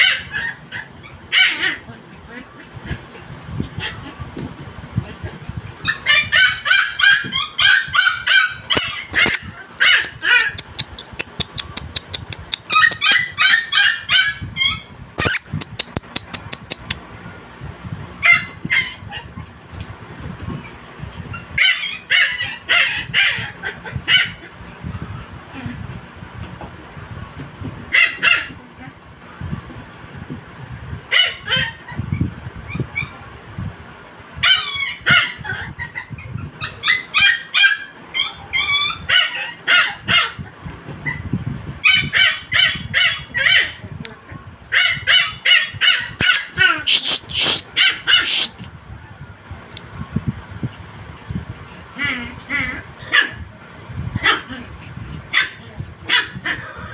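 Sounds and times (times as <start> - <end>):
puppy yipping: 0.0 - 1.8, 5.8 - 17.2, 18.2 - 19.5, 20.4 - 25.3, 27.9 - 29.0, 31.1 - 33.4, 34.4 - 43.8, 44.7 - 49.4.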